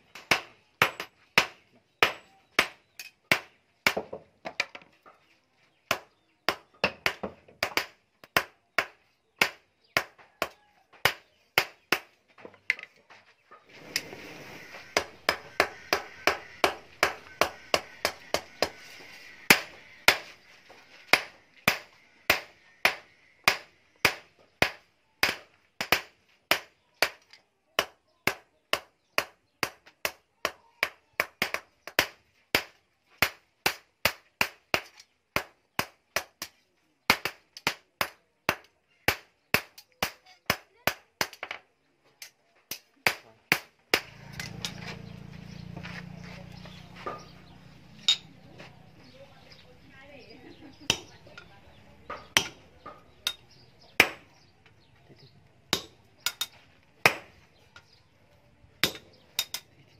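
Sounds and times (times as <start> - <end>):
hammer striking metal on anvil: 48.1 - 48.3, 58.8 - 59.6.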